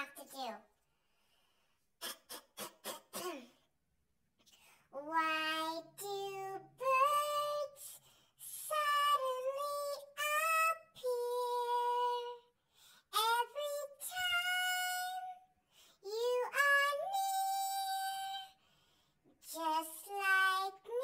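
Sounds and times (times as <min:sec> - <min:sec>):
person singing unaccompanied: 0:05.0 - 0:12.5, 0:13.1 - 0:18.6, 0:19.4 - 0:21.0.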